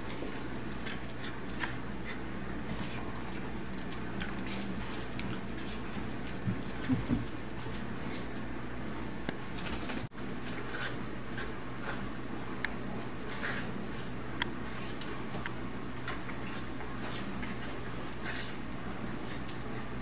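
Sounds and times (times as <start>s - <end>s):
steady low hum: 0.0s - 20.0s
collar tags jingling: 6.6s - 8.1s.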